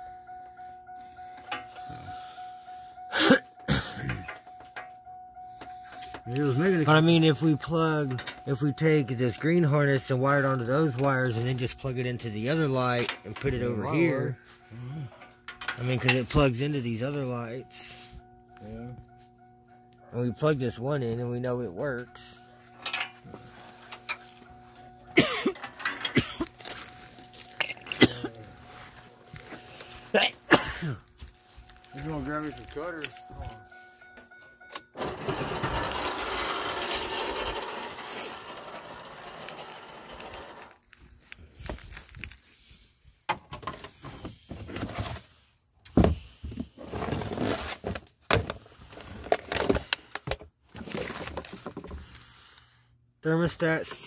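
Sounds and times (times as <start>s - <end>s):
person coughing: 3.1s - 4.4s, 25.2s - 26.5s, 27.6s - 28.5s, 30.1s - 31.1s
loose parts rustling and knocking: 5.9s - 13.7s, 15.3s - 16.5s, 25.4s - 29.6s, 45.9s - 52.2s.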